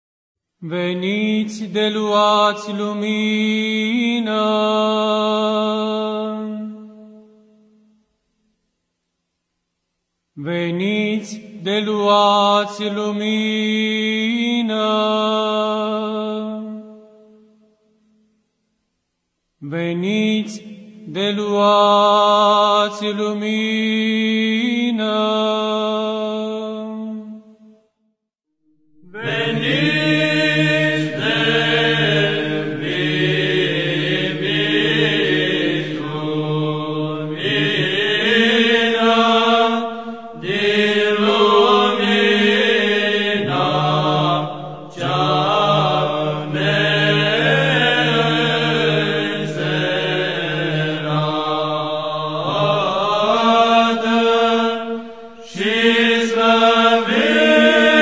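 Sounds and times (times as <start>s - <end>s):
voices chanting: 29.0s - 58.0s
low held drone note: 39.5s - 42.4s, 54.6s - 55.8s.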